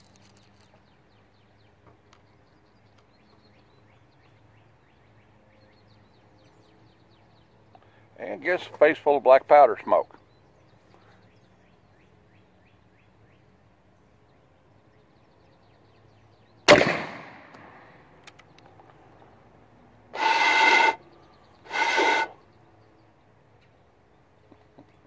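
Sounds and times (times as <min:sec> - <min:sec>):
black-powder gunshot: 0:16.7 - 0:17.8
hollow hoots from blown barrel: 0:20.2 - 0:21.0.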